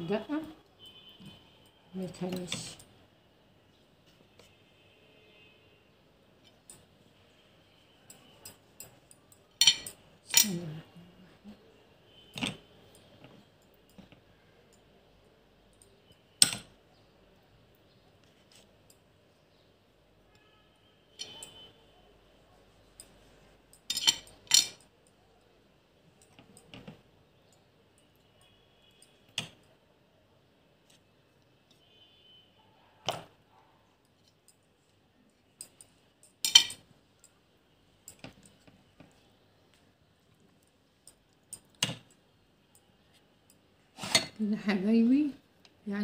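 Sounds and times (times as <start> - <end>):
tableware clinking on a tray: 9.6 - 10.6, 16.4 - 16.7, 23.8 - 24.9, 36.4 - 36.9, 44.0 - 44.4.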